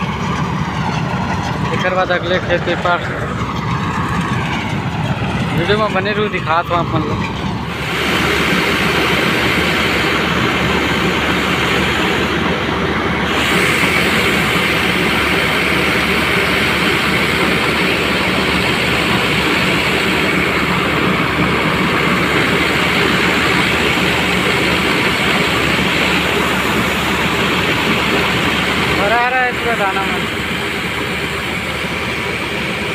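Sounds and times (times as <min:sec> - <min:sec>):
machine drone: 0:00.0 - 0:32.9
hiss of falling grain: 0:07.7 - 0:12.4, 0:13.2 - 0:32.9.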